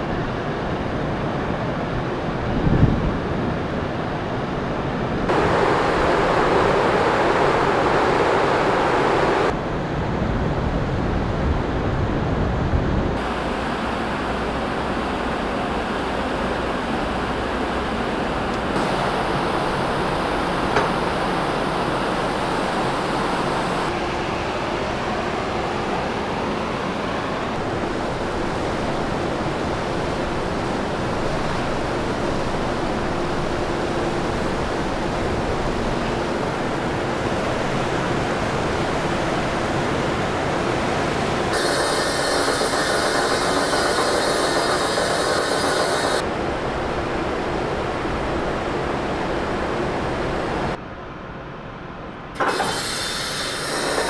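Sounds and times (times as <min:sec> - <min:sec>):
wind on open deck: 0:00.0 - 0:54.0
ship machinery rushing: 0:04.9 - 0:09.6, 0:13.2 - 0:50.8, 0:52.4 - 0:54.0.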